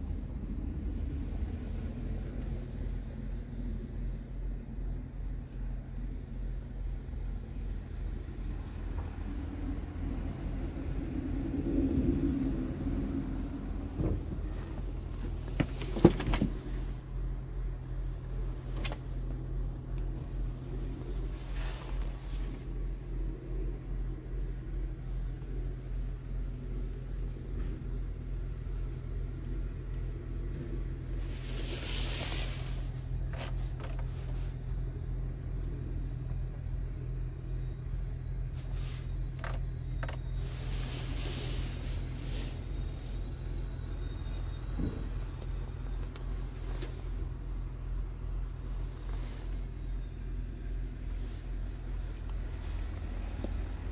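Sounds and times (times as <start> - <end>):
diesel truck engine idling: 0.0 - 53.9
knocks and clicks in cab: 13.9 - 16.8.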